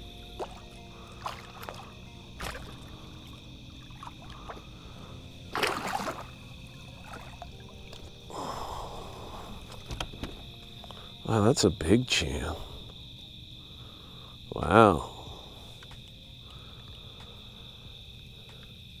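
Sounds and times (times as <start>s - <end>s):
crickets chirping: 0.0s - 19.0s
fish splashing in water: 0.4s - 4.7s, 5.5s - 8.0s.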